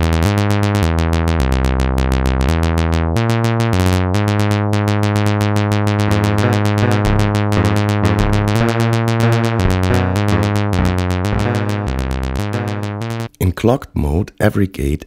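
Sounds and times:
steady low synth note: 6.0s - 13.2s
bright synthesizer notes: 6.0s - 13.3s.

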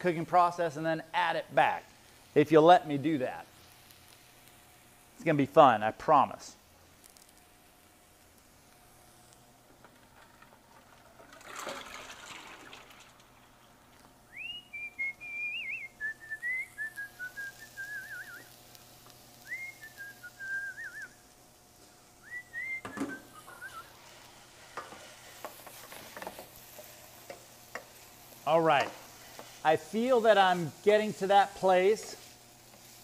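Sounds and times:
food sizzling in a pan: 0.0s - 33.0s
person whistling: 14.3s - 18.5s, 19.4s - 21.2s, 22.2s - 23.9s.

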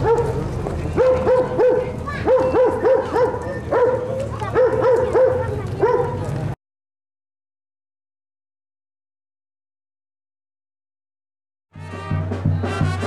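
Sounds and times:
dog barking: 0.0s - 0.4s, 1.0s - 6.3s.

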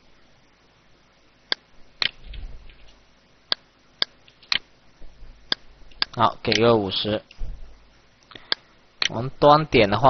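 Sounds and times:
computer mouse clicking: 1.5s - 4.7s.

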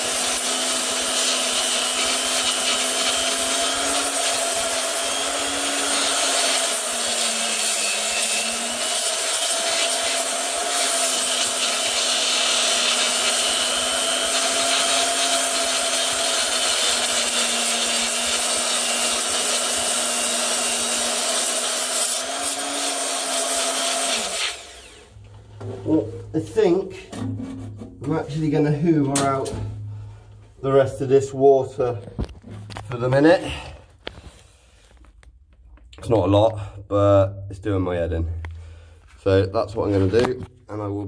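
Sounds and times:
grinder whining against steel: 0.0s - 25.3s.

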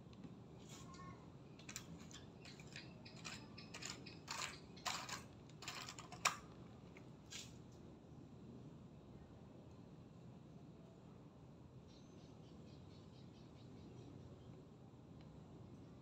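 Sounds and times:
light plastic clicks and rustles: 1.6s - 7.6s.

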